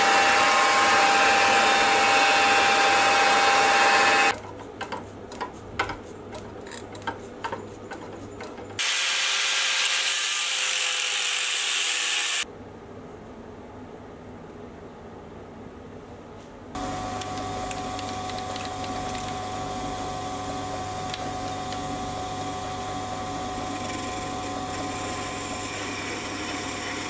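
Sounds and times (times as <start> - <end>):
bench mill drilling steel: 0.0 - 4.3, 8.8 - 12.4, 23.5 - 27.0.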